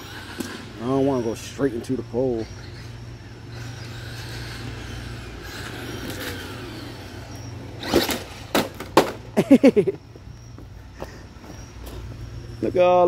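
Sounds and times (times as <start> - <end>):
toy truck motor running: 0.0 - 8.9
short rising and falling whines: 0.0 - 13.0
toy truck knocking against curb: 8.1 - 9.2.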